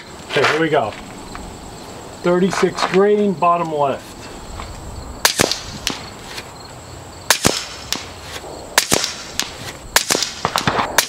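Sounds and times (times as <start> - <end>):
air rifle shots: 5.2 - 6.2, 7.3 - 11.0.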